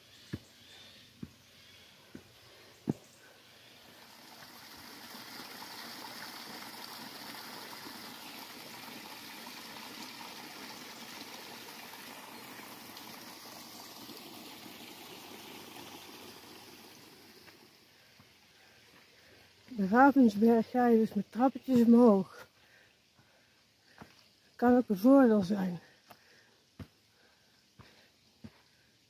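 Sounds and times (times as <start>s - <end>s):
footstep on dirt path: 0.0s - 3.3s, 23.2s - 24.3s, 26.0s - 27.0s, 27.8s - 28.8s
small waterfall rushing: 3.8s - 20.5s.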